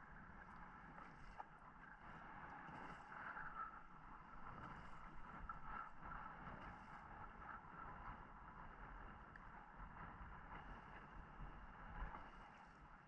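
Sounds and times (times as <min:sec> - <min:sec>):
hiss of wind and sea: 0:10.6 - 0:13.0.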